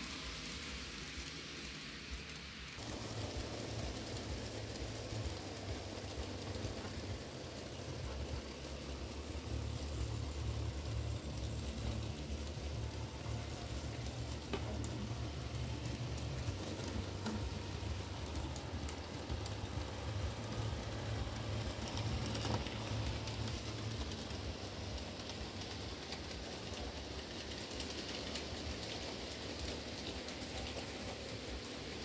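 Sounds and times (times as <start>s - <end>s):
model train motors rumbling: 0.0s - 32.0s.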